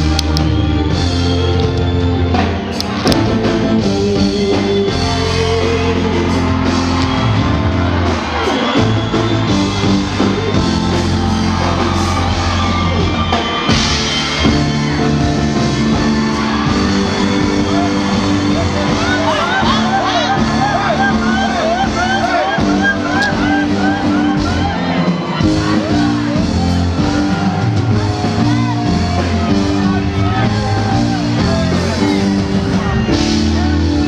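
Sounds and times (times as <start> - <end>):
deep bass line: 0.0 - 34.0
drums: 0.0 - 34.0
guitar: 0.0 - 34.0
live band music: 0.0 - 34.0
person singing: 3.1 - 7.2.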